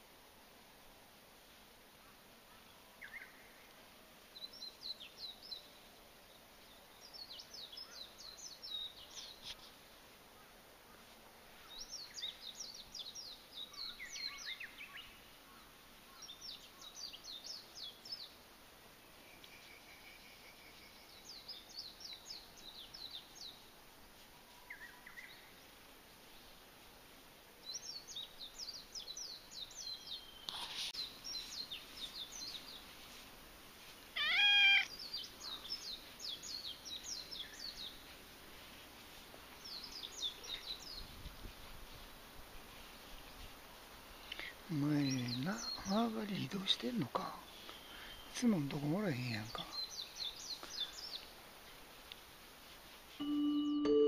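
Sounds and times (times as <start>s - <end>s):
small birds twittering: 4.3s - 18.4s, 19.0s - 23.7s, 24.5s - 26.6s, 27.6s - 52.2s
cat meowing: 34.2s - 34.9s.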